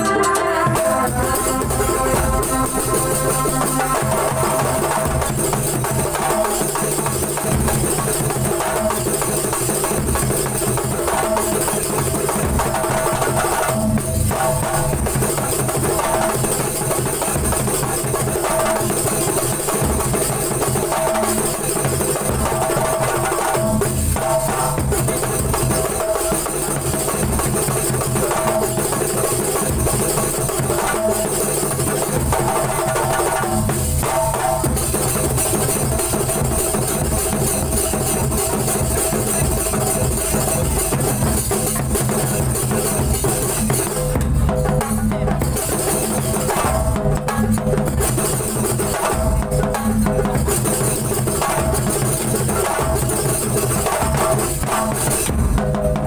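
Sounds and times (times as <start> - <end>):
bass drums beating: 0.0 - 5.6, 33.5 - 48.0
frame drums in driving rhythm: 0.0 - 56.0.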